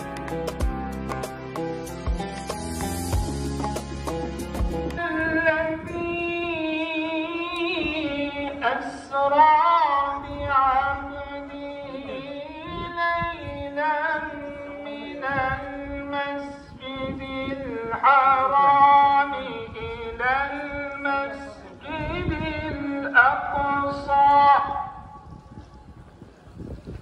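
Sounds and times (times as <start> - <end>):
person chanting: 5.0 - 25.1.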